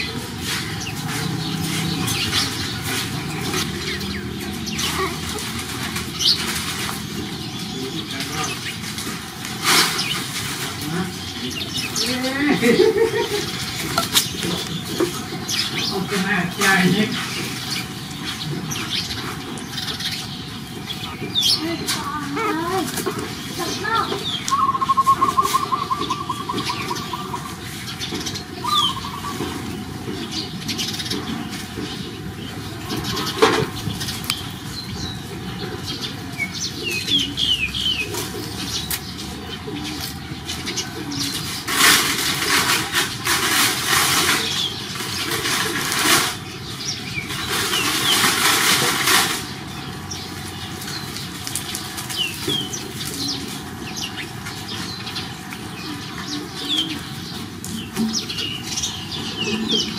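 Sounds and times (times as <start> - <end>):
small birds chirping: 0.0 - 59.9.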